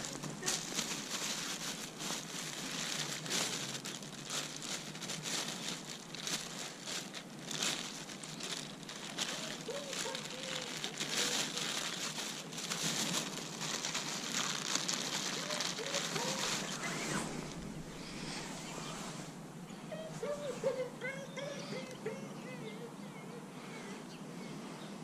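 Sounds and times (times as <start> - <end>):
plastic bag crinkling: 0.0 - 18.5.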